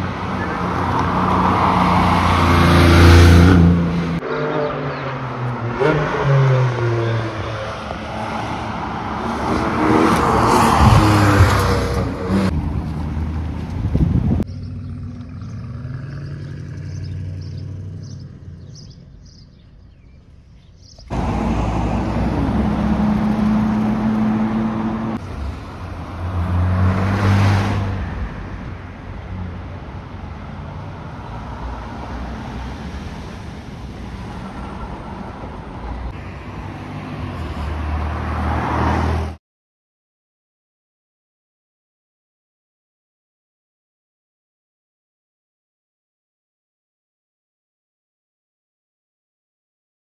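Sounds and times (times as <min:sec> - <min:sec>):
traffic: 0:00.0 - 0:39.4
sports car passing: 0:00.2 - 0:19.2, 0:21.1 - 0:28.5, 0:29.1 - 0:39.4
car engine pulling away: 0:10.3 - 0:20.1, 0:20.9 - 0:27.9.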